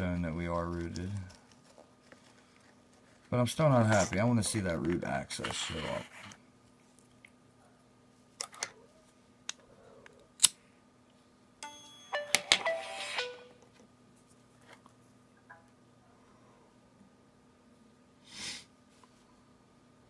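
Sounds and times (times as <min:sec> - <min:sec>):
phone startup chime: 0:11.6 - 0:13.5.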